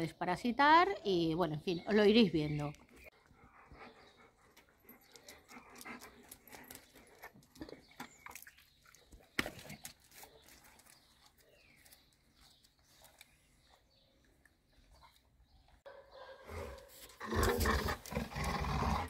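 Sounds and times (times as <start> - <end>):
dog: 15.9 - 17.1.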